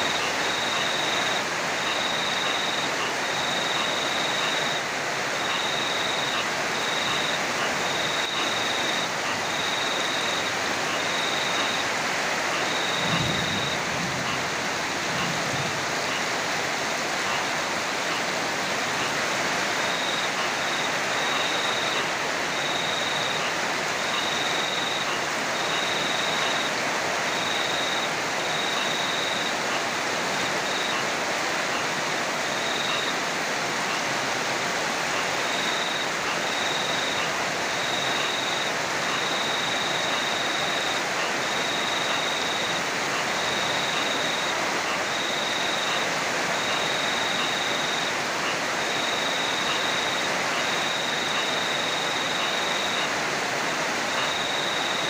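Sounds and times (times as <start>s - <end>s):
heavy rain: 0.0s - 55.0s
high cricket trill: 12.6s - 16.3s, 19.0s - 29.7s, 35.2s - 55.0s.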